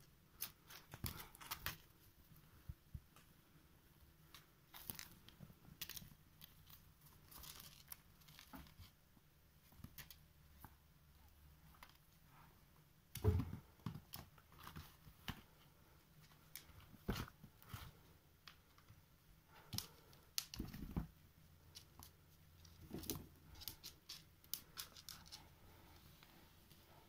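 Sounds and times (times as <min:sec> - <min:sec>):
claws scratching and clicking: 0:00.3 - 0:01.9, 0:04.3 - 0:08.9, 0:19.5 - 0:21.0, 0:21.6 - 0:25.6
thump: 0:13.2 - 0:13.6.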